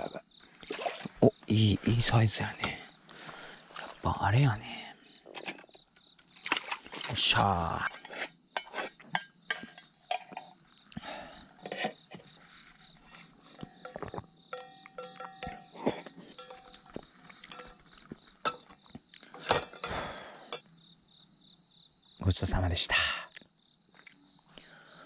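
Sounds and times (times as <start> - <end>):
insects chirring: 0.0 - 25.0
tableware clinking: 7.9 - 10.6, 13.4 - 20.7
clear ringing tones: 14.5 - 17.9.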